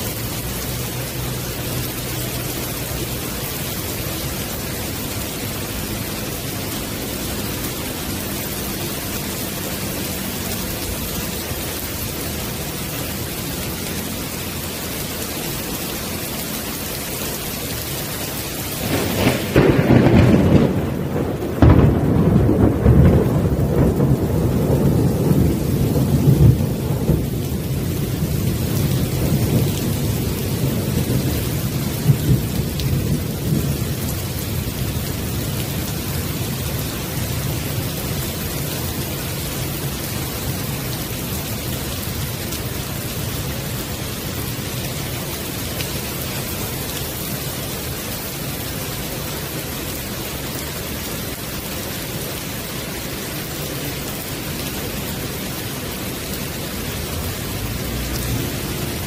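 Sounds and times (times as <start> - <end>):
heavy rain on wooden deck: 0.0 - 59.0
thunder: 18.8 - 34.1.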